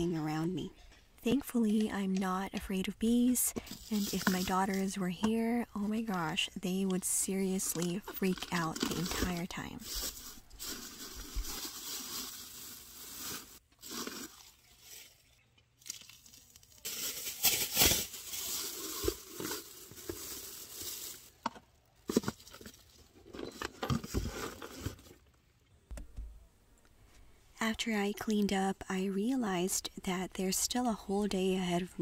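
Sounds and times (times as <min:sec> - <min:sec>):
plastic bag crinkling: 0:07.7 - 0:23.2.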